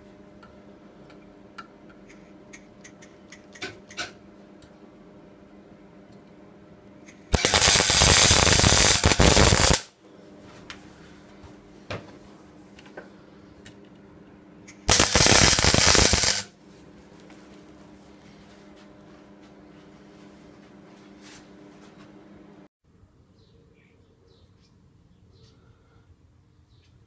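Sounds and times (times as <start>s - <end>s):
welder arc crackling: 7.2s - 9.9s, 14.8s - 16.5s.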